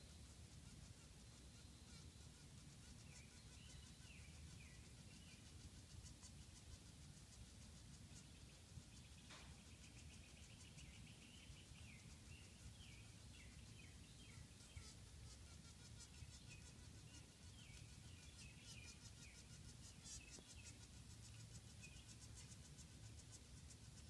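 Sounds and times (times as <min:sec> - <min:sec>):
bird chirps: 0:02.9 - 0:05.6, 0:08.2 - 0:15.4, 0:16.0 - 0:22.6.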